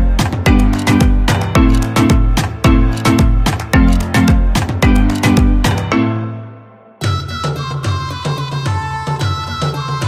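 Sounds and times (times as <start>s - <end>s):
music with deep sliding bass: 0.0s - 6.2s.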